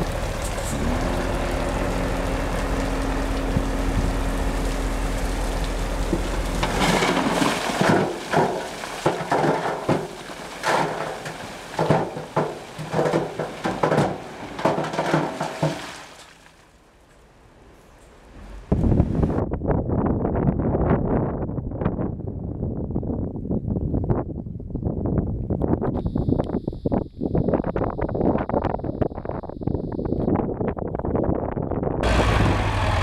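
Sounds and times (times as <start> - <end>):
truck engine running: 0.0 - 15.7, 32.0 - 33.0
earth and rocks clattering: 6.0 - 16.5.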